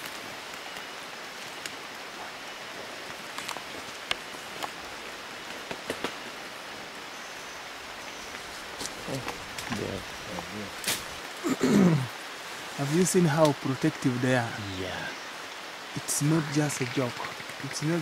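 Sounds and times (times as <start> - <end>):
rainforest hiss: 0.0 - 18.0
light ticks and snaps: 1.5 - 1.8, 3.0 - 4.8, 13.4 - 13.6.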